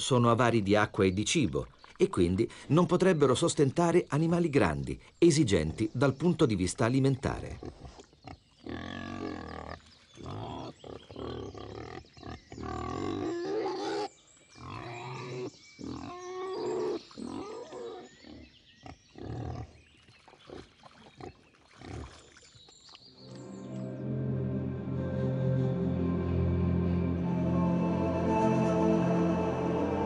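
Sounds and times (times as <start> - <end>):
wild boars grunting: 7.5 - 19.8.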